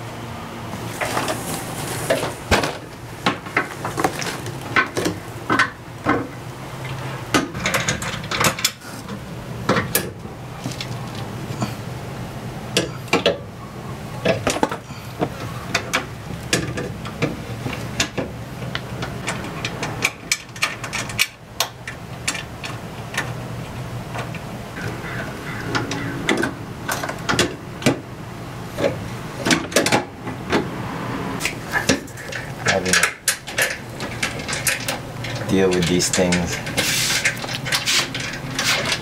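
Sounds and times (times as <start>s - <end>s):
steady low hum: 0.0s - 39.0s
metal parts clicking and knocking: 7.3s - 11.2s, 14.2s - 24.4s, 31.4s - 39.0s.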